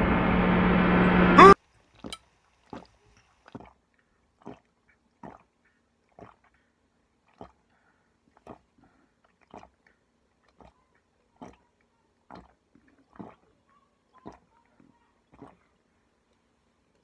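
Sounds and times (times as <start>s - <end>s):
person gulping a drink: 2.0s - 14.6s, 15.2s - 15.8s.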